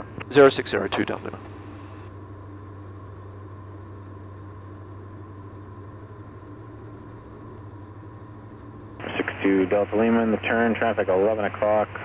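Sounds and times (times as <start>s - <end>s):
aircraft engines droning in cabin: 0.0s - 12.0s.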